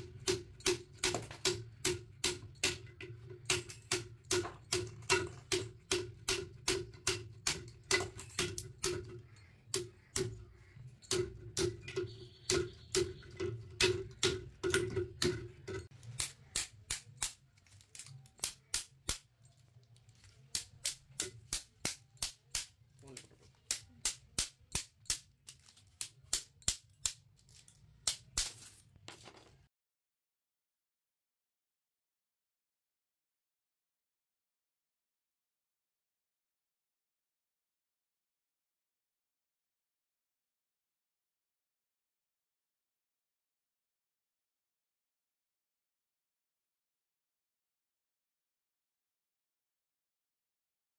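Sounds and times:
metal striking metal: 0.0s - 17.4s.

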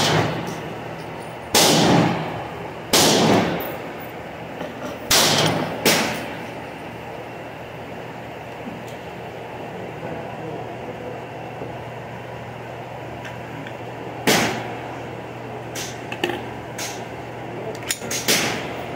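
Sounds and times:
steady background hum: 0.0s - 18.9s
gunshot with echo: 1.6s - 2.3s, 2.9s - 3.6s, 5.1s - 6.3s, 14.3s - 14.7s, 18.2s - 18.7s.

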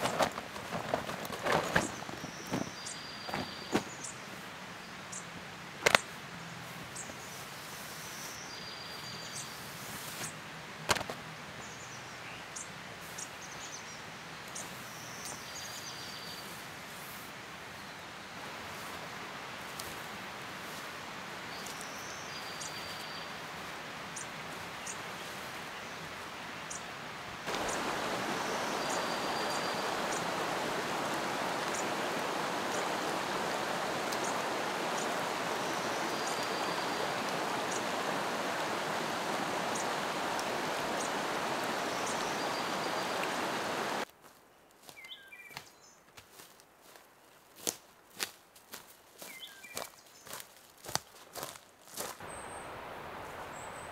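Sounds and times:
footsteps on forest floor: 0.0s - 4.0s, 27.5s - 52.3s
water rushing over rocks: 27.4s - 44.0s
bird chirps: 27.5s - 44.0s.

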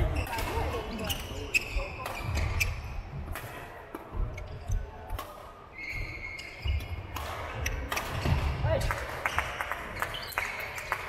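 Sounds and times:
racket hitting shuttlecock: 3.3s - 4.2s, 6.7s - 9.1s
high squeak: 5.8s - 7.0s.

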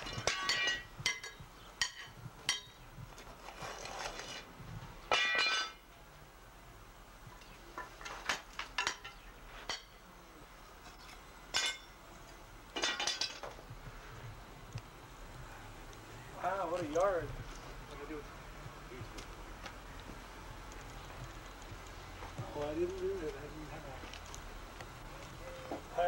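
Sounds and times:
metal tool striking metal debris: 0.0s - 2.8s, 5.1s - 5.8s, 11.5s - 12.0s, 12.8s - 13.5s.

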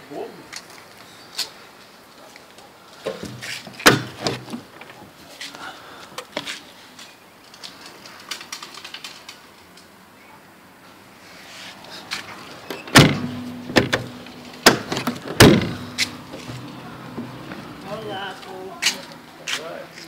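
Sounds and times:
truck door bangs and thumps: 3.1s - 4.9s, 12.7s - 17.5s.

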